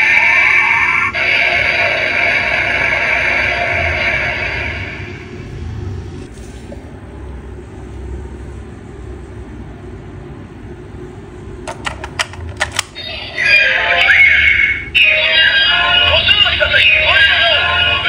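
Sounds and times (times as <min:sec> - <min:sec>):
toy electronic sound effect: 0:00.0 - 0:05.2
low background rumble: 0:01.0 - 0:18.0.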